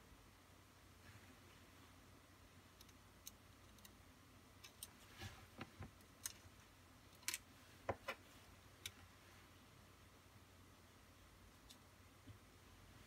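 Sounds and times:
tweezers clicking on plastic parts: 2.8s - 4.0s, 4.6s - 5.0s, 6.0s - 6.5s.

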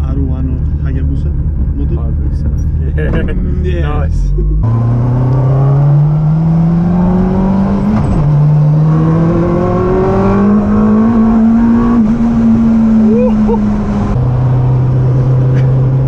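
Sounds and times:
motorcycle engine accelerating: 4.3s - 16.0s.

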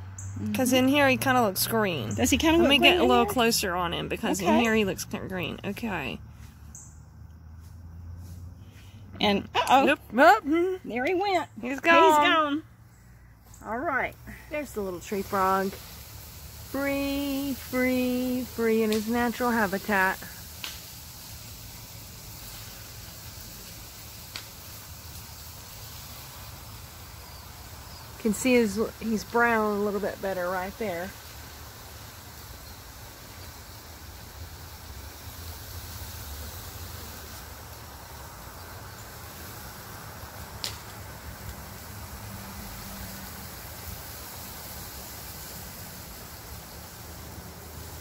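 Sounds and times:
faint outdoor night background: 0.0s - 48.0s
hiss: 9.8s - 48.0s.

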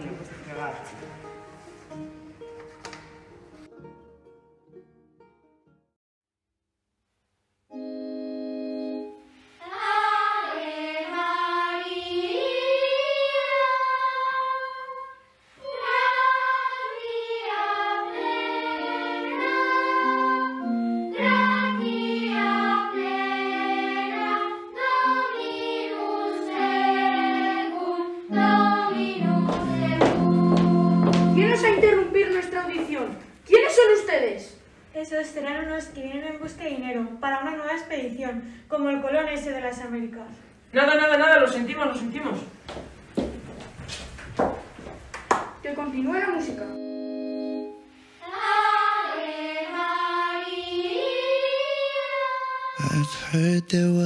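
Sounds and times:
held keyboard chord: 7.7s - 9.4s, 18.0s - 27.4s, 28.0s - 31.7s, 46.7s - 48.0s
person singing with vibrato: 15.6s - 31.6s, 51.0s - 54.0s
sustained organ-like chords: 18.0s - 31.5s, 46.7s - 47.9s.

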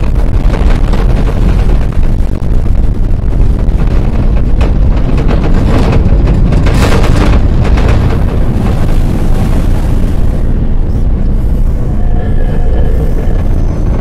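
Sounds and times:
low rumble with crackle: 0.0s - 14.0s
hissing swell: 10.3s - 14.0s.

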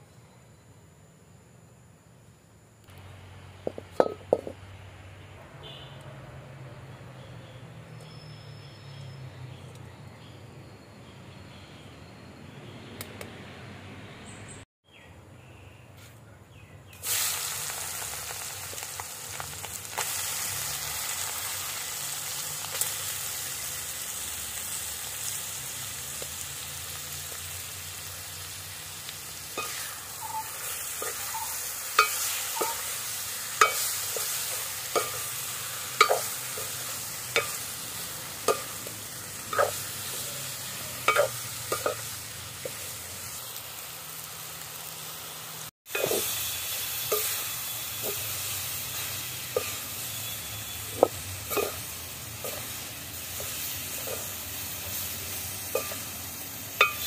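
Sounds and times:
ladle knocking and scraping pot: 3.6s - 4.6s, 36.0s - 36.7s, 41.0s - 42.0s, 45.9s - 46.3s, 51.0s - 51.8s
meat sizzling in hot oil: 17.0s - 57.0s.

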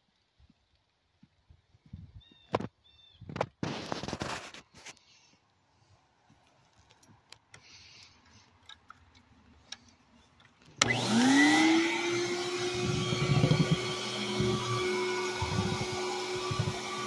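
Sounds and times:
faint clicks: 6.4s - 10.9s
vacuum cleaner motor whine: 10.8s - 17.0s.

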